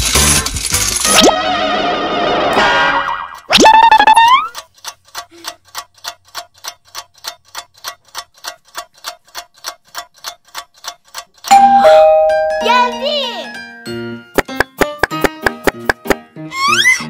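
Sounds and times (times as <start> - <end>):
clock ticking: 3.4 - 13.4.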